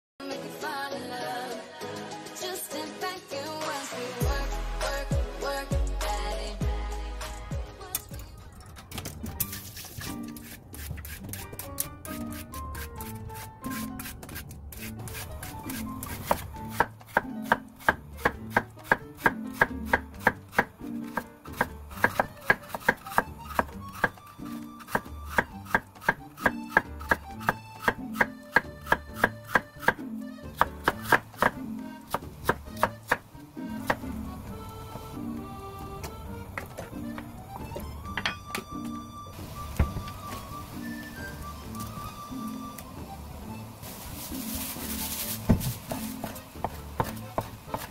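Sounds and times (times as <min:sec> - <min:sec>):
knife slicing on wooden board: 0:09.4 - 0:21.3.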